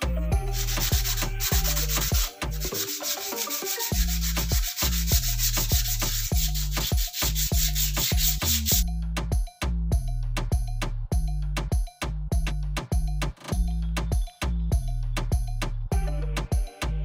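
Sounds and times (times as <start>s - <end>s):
background music with deep bass: 0.0s - 17.0s
sandpaper rubbing on cement: 0.4s - 8.8s.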